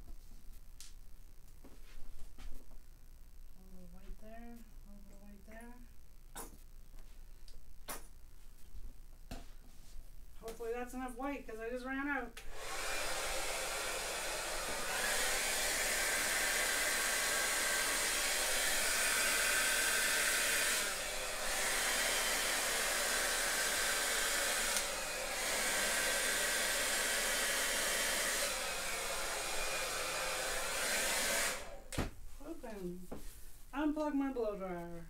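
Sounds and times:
hair dryer blowing: 0:12.4 - 0:32.0.

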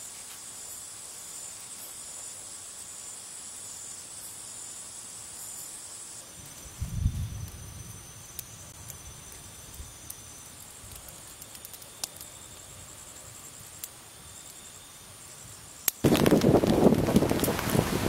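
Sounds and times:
night insects calling: 0:00.0 - 0:18.0
campfire crackling: 0:05.1 - 0:18.0
heavy rain on a tarp: 0:16.0 - 0:18.0.

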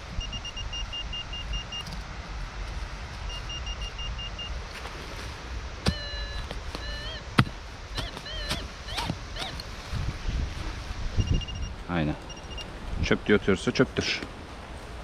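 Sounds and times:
metal detector pulsed beeps: 0:00.1 - 0:01.9, 0:03.3 - 0:04.6, 0:05.8 - 0:07.3, 0:08.0 - 0:09.6, 0:11.2 - 0:12.7
wavering pitched calls: 0:05.8 - 0:09.7
wind rumble: 0:08.7 - 0:15.0.

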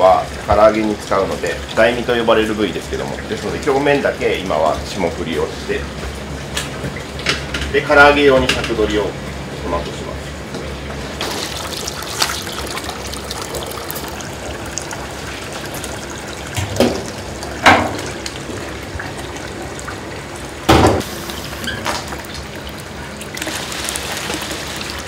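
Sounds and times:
water splashing and sloshing: 0:00.0 - 0:07.8, 0:09.2 - 0:25.0
tap water running into sink: 0:10.5 - 0:25.0.

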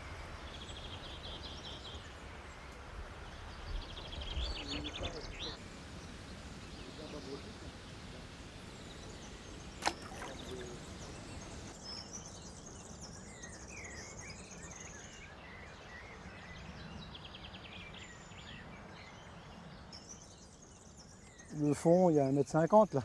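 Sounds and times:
birds chirping and calling: 0:08.9 - 0:23.0.

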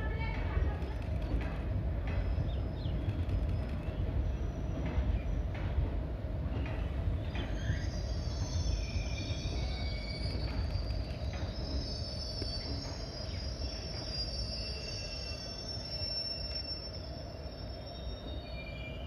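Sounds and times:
train wheels rumbling on rails: 0:00.0 - 0:19.0
high-pitched wheel squeal: 0:07.5 - 0:19.0.

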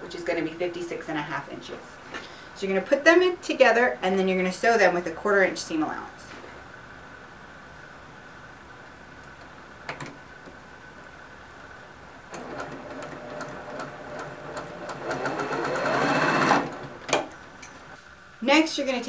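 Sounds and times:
sewing machine stitching: 0:12.3 - 0:17.0.

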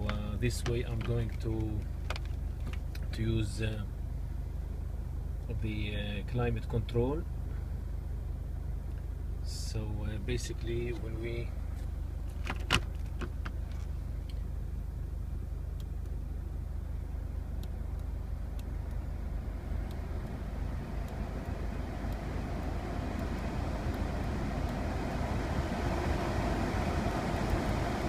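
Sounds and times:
van cabin rumble: 0:00.0 - 0:28.0
climate control blower: 0:19.8 - 0:28.0.

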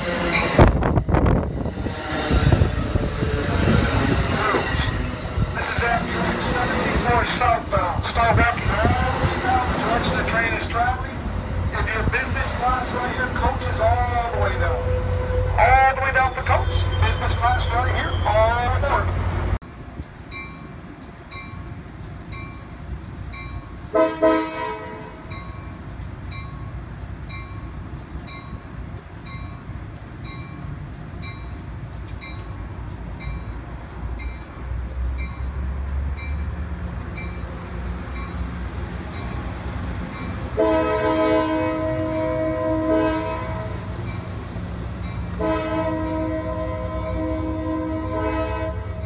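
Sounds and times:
diesel train rumbling: 0:00.0 - 0:49.0
train horn blasts: 0:13.9 - 0:18.2, 0:23.9 - 0:25.2, 0:40.6 - 0:43.9, 0:45.4 - 0:49.0
bell ringing: 0:16.0 - 0:18.8.

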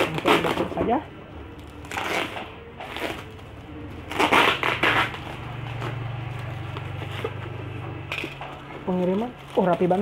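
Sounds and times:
packing tape peeling: 0:00.0 - 0:00.8, 0:01.5 - 0:10.0
plastic crinkling: 0:08.1 - 0:10.0.

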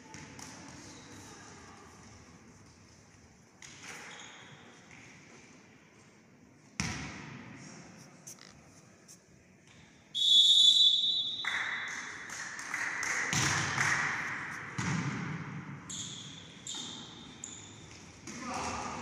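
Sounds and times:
referee's whistle blast: 0:10.2 - 0:11.5.

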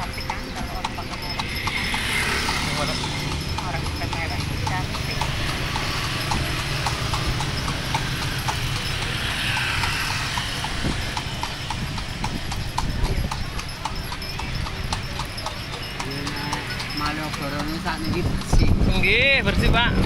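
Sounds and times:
horse hooves clip-clopping on pavement: 0:00.0 - 0:20.0.

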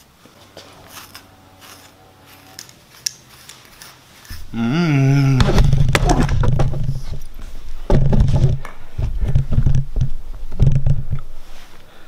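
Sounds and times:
scuffling and knocks: 0:05.2 - 0:11.8.

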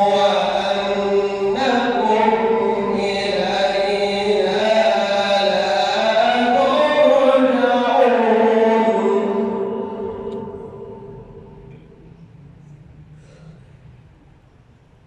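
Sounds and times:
man reciting melodically: 0:00.0 - 0:12.0.

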